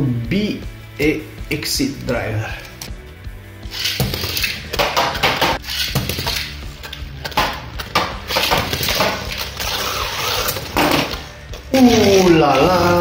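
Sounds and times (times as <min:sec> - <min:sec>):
spinning tops clattering: 0:03.7 - 0:09.8.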